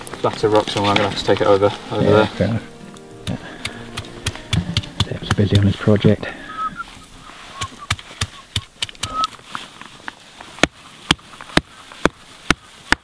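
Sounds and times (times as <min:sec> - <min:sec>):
stone knocking on fungus: 0:03.2 - 0:05.8.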